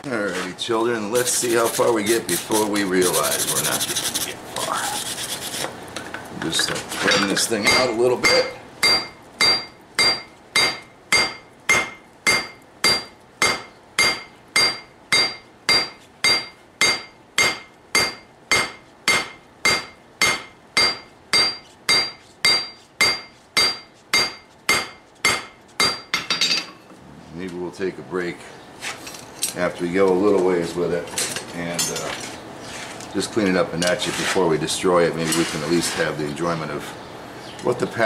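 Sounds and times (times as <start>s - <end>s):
hammer ringing on anvil: 7.6s - 26.6s.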